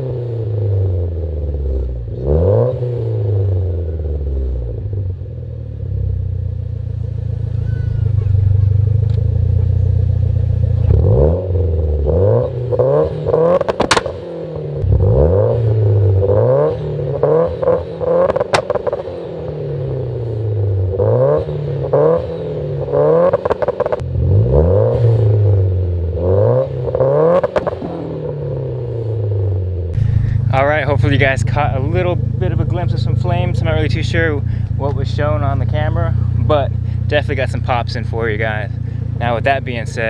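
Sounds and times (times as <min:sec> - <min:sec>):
car engine revving against limiter: 0:00.0 - 0:05.2, 0:05.8 - 0:40.0
exhaust pops: 0:07.3 - 0:11.1, 0:13.4 - 0:14.2, 0:18.2 - 0:19.1, 0:30.0 - 0:40.0.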